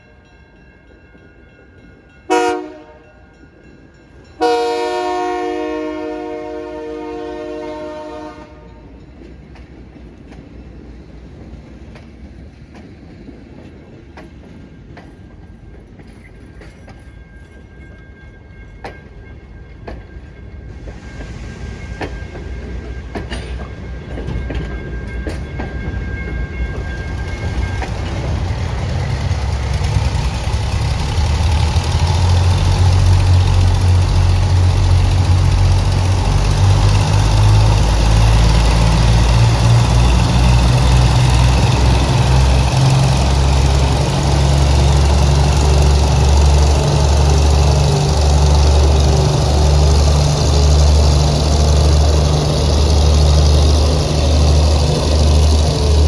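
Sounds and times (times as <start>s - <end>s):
locomotive horn chord: 2.3s - 3.2s, 4.4s - 8.8s
train wheels clicking over rail joints: 8.8s - 56.0s
diesel engine rumble: 27.2s - 56.0s.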